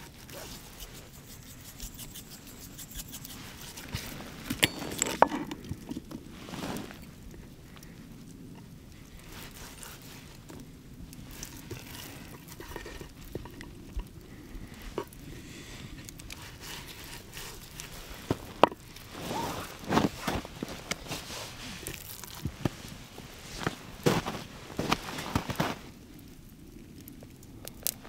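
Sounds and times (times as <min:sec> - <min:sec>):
rustling: 0:00.0 - 0:08.0, 0:16.0 - 0:26.0.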